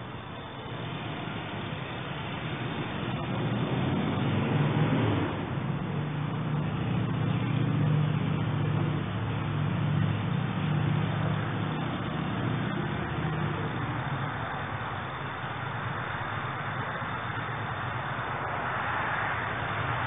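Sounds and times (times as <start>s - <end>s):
engine revving high: 0.7s - 14.5s.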